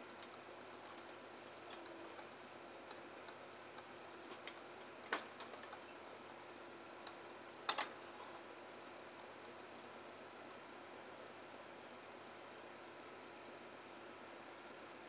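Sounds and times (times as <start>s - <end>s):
small clicks and ticks: 0.1s - 6.0s, 7.0s - 8.5s.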